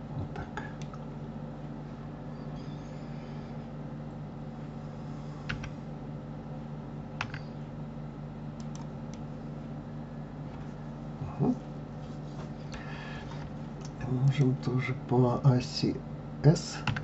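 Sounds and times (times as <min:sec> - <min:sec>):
steady low hum: 0:00.0 - 0:17.0
keyboard and mouse clicks: 0:07.2 - 0:07.5, 0:08.6 - 0:09.2.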